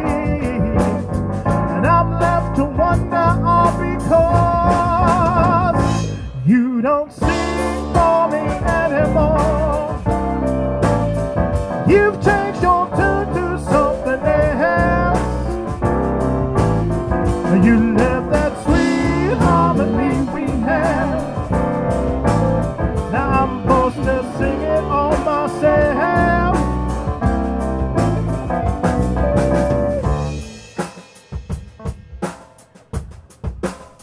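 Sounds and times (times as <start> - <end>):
person singing lead: 0.0 - 1.0, 1.7 - 10.2, 11.8 - 15.8, 17.4 - 27.0
band playing: 0.0 - 34.0.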